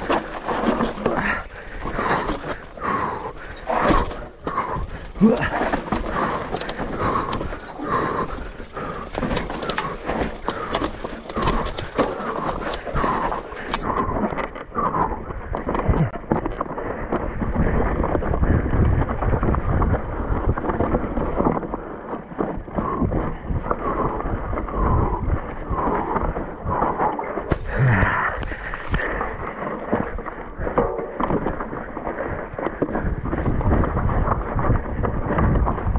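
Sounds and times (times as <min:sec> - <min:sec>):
bike rattling over rough ground: 0:00.0 - 0:35.9
wind buffeting microphone: 0:17.0 - 0:21.8, 0:22.4 - 0:35.9.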